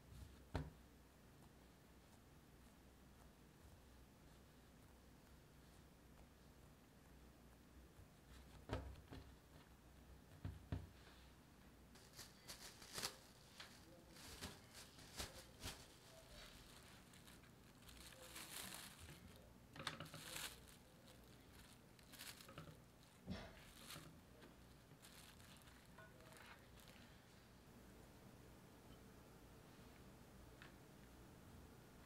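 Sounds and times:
cling wrap crinkling: 11.9s - 27.3s.

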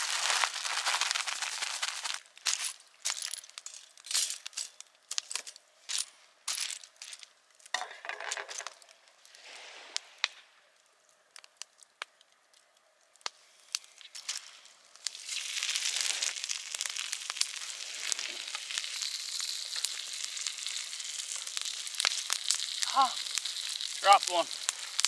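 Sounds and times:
plastic bag crinkling: 0.0s - 5.5s, 14.0s - 25.0s.

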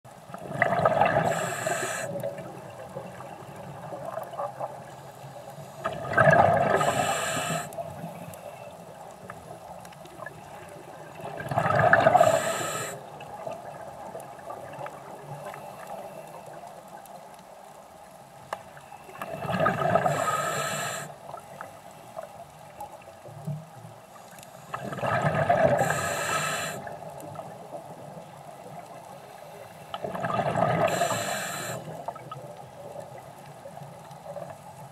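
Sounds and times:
rush of exhaled bubbles: 0.4s - 4.8s, 5.8s - 7.7s, 11.1s - 15.3s, 19.2s - 20.6s, 24.7s - 27.4s, 30.0s - 32.4s
diver breathing through regulator: 1.0s - 2.2s, 5.1s - 8.7s, 12.0s - 13.1s, 19.7s - 21.2s, 24.2s - 26.9s, 30.6s - 32.0s.

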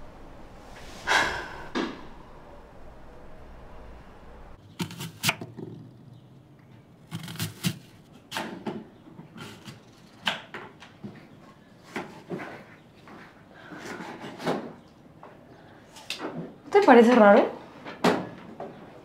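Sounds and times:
knife slicing through apple: 7.1s - 8.5s.

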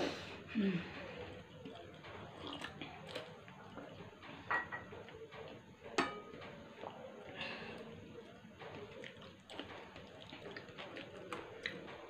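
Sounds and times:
glass and plates clinking: 4.4s - 5.0s, 6.0s - 6.4s.

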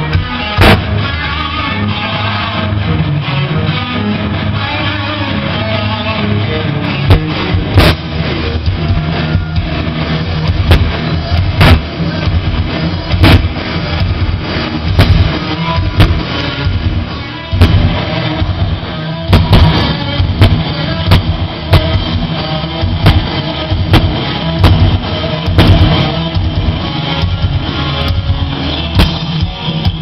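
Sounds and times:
rock band playing loud: 0.0s - 30.0s
sharp drum hits: 0.6s - 1.0s, 7.1s - 8.2s, 10.4s - 11.9s, 13.1s - 14.2s, 14.9s - 16.8s, 17.6s - 26.7s.

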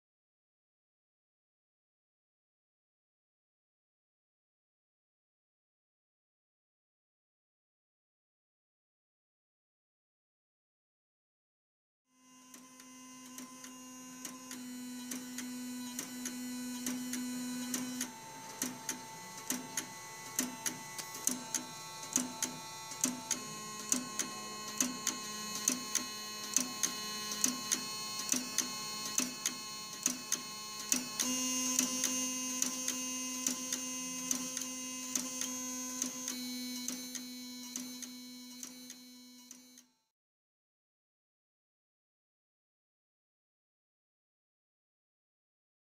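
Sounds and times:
buzzer steady buzzing tone: 12.2s - 40.0s.

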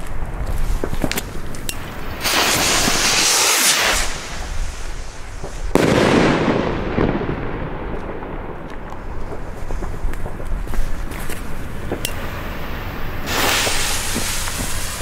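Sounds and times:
firework hiss: 0.5s - 6.6s, 9.3s - 15.0s
firework bang echoing: 1.8s - 10.4s, 11.9s - 15.0s.

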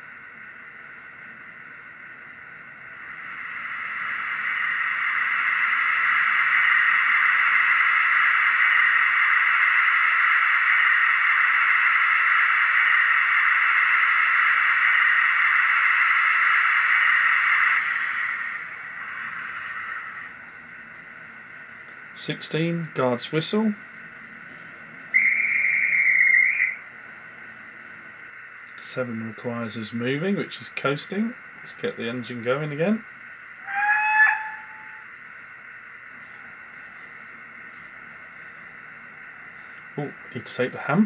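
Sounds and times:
steam safety valve hissing: 33.6s - 35.0s.

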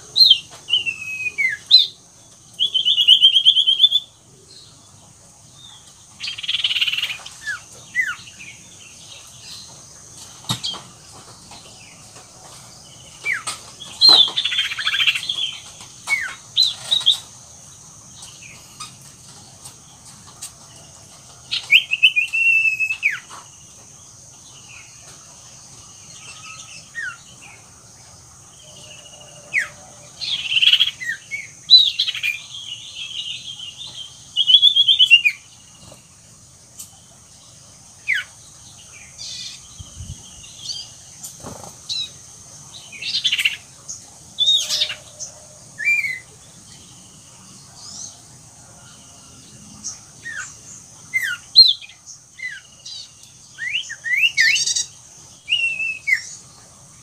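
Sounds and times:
bird chirping and whistling: 0.3s - 1.9s.

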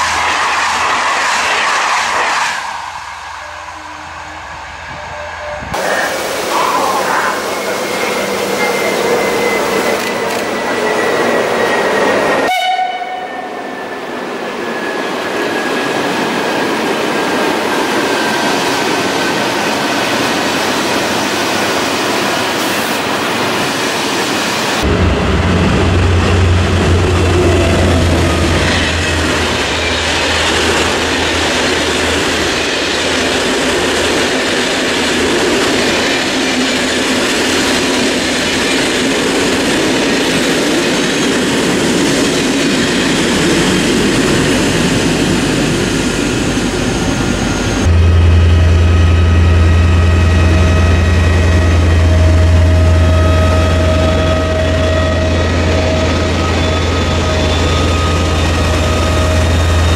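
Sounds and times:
train coaches rolling by: 0.0s - 59.9s
deep diesel engine rumble: 24.8s - 32.6s, 46.2s - 59.9s.

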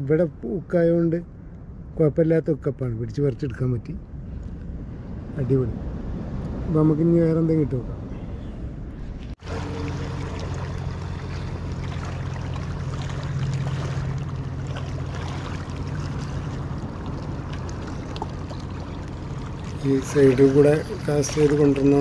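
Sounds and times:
low rumble: 1.1s - 22.0s
water lapping against rocks: 9.4s - 22.0s.

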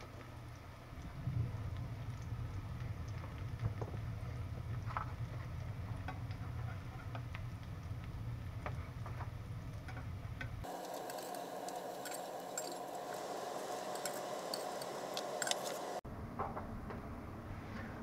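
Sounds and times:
meat frying in hot fat: 0.0s - 16.0s
low steady hum: 0.0s - 16.3s
high steady hiss: 10.6s - 16.0s
spatula scraping a pan: 10.7s - 16.0s.

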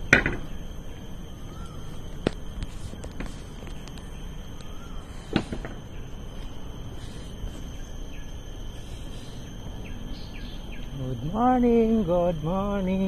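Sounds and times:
high insect drone: 0.0s - 13.0s
faint bird chirp: 0.4s - 2.1s, 2.8s - 11.6s
rustling from handling phone: 1.6s - 5.7s.

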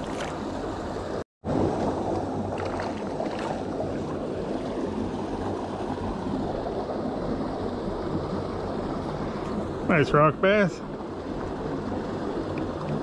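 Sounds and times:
water rushing through spillway: 0.0s - 13.0s.

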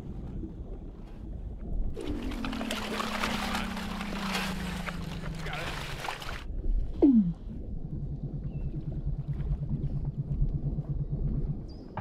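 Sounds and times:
seal falling call underwater: 2.0s - 6.4s
low pulsed seal trill: 2.0s - 12.0s.

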